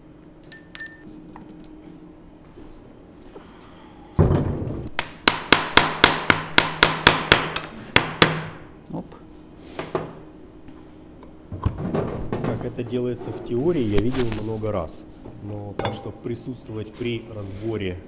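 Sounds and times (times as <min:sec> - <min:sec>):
hammer striking steel: 0:00.5 - 0:01.1, 0:05.0 - 0:08.6.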